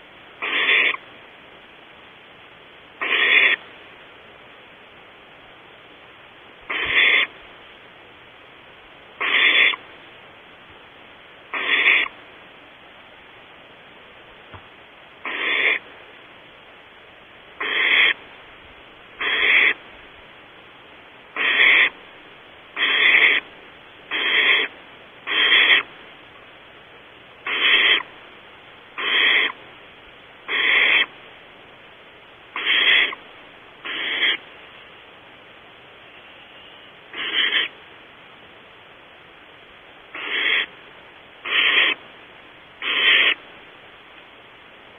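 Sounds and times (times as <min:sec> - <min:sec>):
owlet raspy hissing calls: 0:00.0 - 0:01.1, 0:03.0 - 0:03.6, 0:06.6 - 0:07.4, 0:09.2 - 0:09.9, 0:11.5 - 0:12.2, 0:15.2 - 0:15.9, 0:17.6 - 0:18.2, 0:19.2 - 0:19.9, 0:21.3 - 0:22.1, 0:22.7 - 0:23.5, 0:24.1 - 0:26.0, 0:27.4 - 0:28.2, 0:28.9 - 0:29.6, 0:30.4 - 0:31.2, 0:32.5 - 0:35.2, 0:36.0 - 0:37.9, 0:40.1 - 0:40.8, 0:41.4 - 0:42.1, 0:42.8 - 0:43.5.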